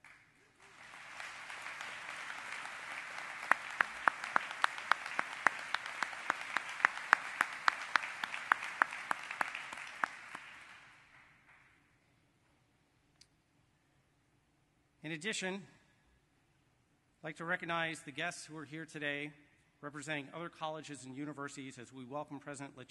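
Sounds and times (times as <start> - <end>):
audience applauding: 0.0 - 11.7
close evenly spaced handclaps: 0.0 - 11.8.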